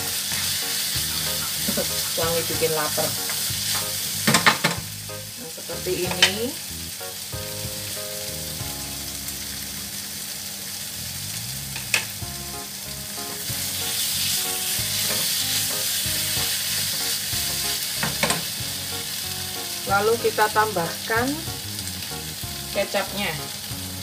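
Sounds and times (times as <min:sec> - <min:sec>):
food sizzling in oil: 0:00.0 - 0:24.0
spatula stirring: 0:00.2 - 0:04.1
spatula tapping pan: 0:06.0 - 0:06.4.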